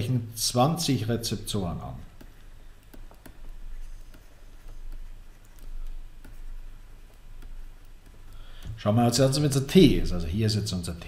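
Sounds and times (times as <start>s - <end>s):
steady low hum: 0.0s - 11.0s
stylus tapping on tablet screen: 2.1s - 8.8s.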